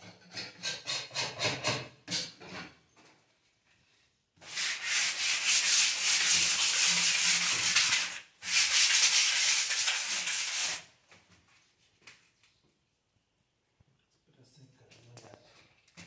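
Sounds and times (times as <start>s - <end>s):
sandpaper scratching on wall: 4.4s - 10.9s.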